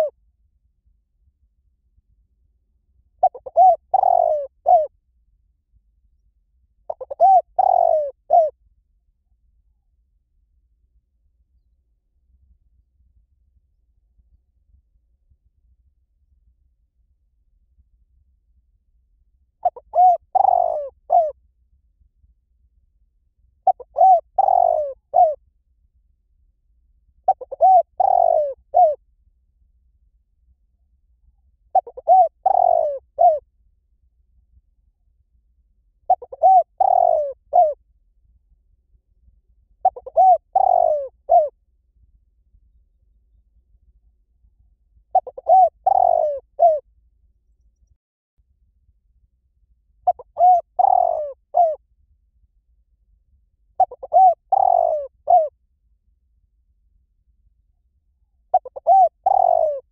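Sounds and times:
dove cooing: 3.2 - 4.9, 6.9 - 8.6, 19.6 - 21.3, 23.6 - 25.4, 27.3 - 29.0, 31.7 - 33.4, 36.1 - 37.8, 39.8 - 41.5, 45.1 - 46.8, 50.1 - 51.8, 53.8 - 55.5, 58.5 - 59.9.

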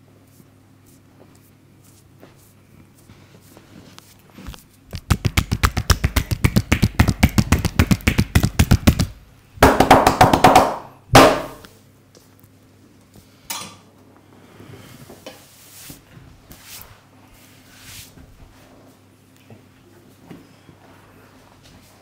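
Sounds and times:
rapid hand tapping massage: 4.9 - 11.6.

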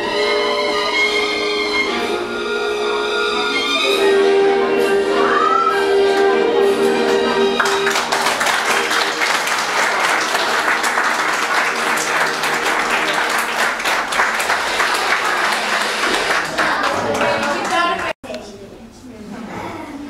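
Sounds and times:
audience applauding: 7.6 - 18.2.

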